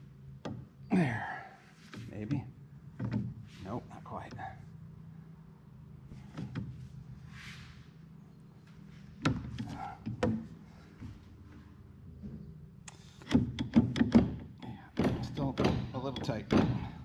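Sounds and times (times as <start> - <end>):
metal knocks and clicks: 13.2 - 17.0.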